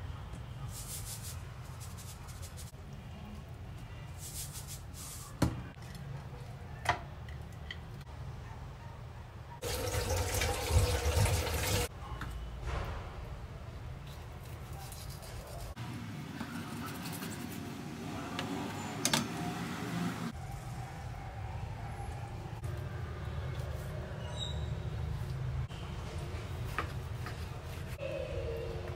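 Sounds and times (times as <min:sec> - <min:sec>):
kitchen tap running: 0:09.6 - 0:11.9.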